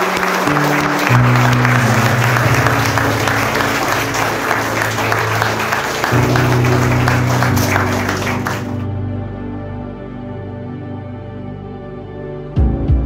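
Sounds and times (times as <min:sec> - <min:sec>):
crowd applauding: 0:00.0 - 0:08.9
slow background music: 0:00.0 - 0:13.0.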